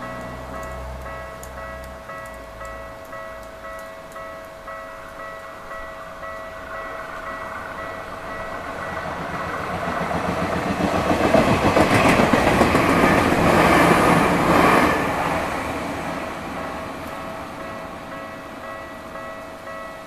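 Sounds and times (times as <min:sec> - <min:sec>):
crossing warning bell ringing: 0:00.0 - 0:20.0
train rumble and wheel clatter: 0:00.0 - 0:20.0.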